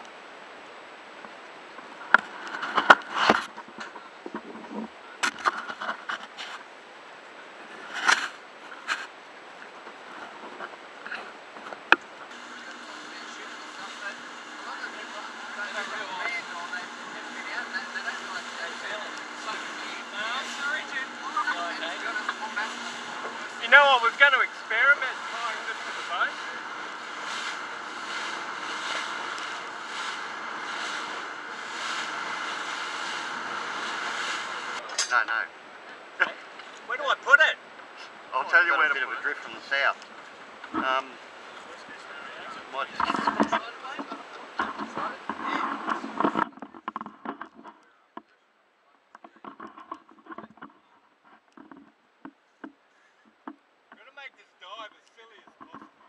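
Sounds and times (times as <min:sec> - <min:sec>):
action camera knocks and rubbing: 0:43.0 - 0:47.8, 0:51.4 - 0:53.6, 0:55.4 - 0:56.0.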